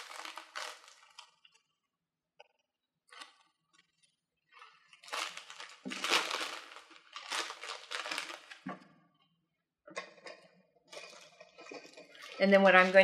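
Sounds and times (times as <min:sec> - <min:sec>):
cellophane bag crinkling: 0:00.0 - 0:01.6, 0:04.6 - 0:08.8.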